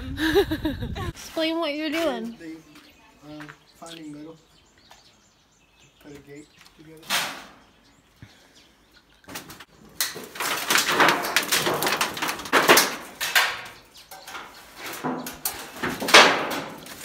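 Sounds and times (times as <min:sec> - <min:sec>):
metal clattering and scraping: 0:09.4 - 0:17.0.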